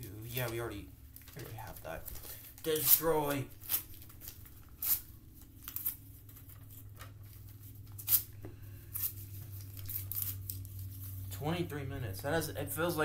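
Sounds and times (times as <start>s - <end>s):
steady low hum: 0.0s - 13.0s
paper tearing: 2.6s - 6.0s.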